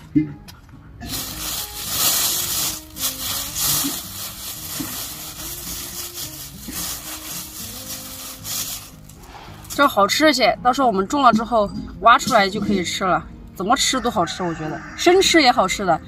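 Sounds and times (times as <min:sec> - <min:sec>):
soft background music: 0:00.0 - 0:16.0
rough scraping and rubbing: 0:01.0 - 0:10.1.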